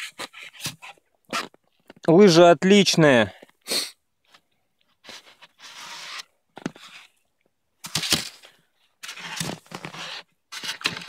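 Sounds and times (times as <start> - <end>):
ski clicks and knocks: 7.8 - 11.0.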